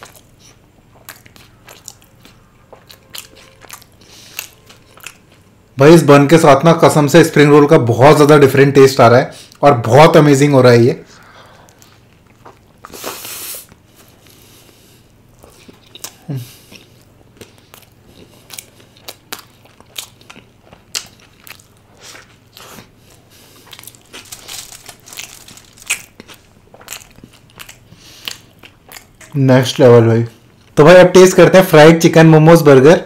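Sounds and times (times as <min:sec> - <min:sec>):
crunchy biting and chewing: 0:00.0 - 0:05.5, 0:11.6 - 0:29.2.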